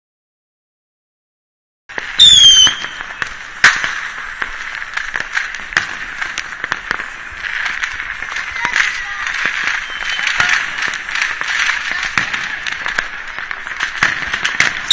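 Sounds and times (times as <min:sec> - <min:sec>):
fireworks bangs and cracks: 0:01.9 - 0:14.9
fireworks hiss: 0:01.9 - 0:14.9
falling firework whistle: 0:02.0 - 0:03.8, 0:09.6 - 0:10.6, 0:14.7 - 0:14.9.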